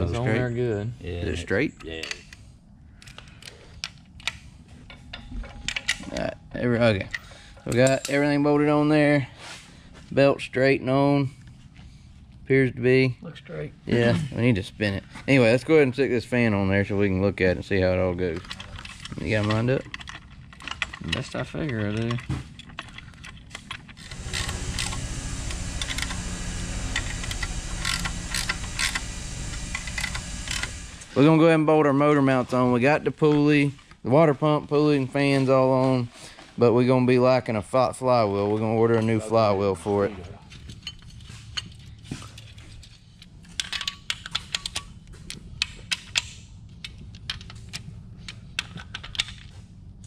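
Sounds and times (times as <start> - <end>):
clicks of parts being handled: 18.4 - 30.8, 40.7 - 49.6
hand ratchet clicking: 22.8 - 31.1
low hum: 24.0 - 31.3.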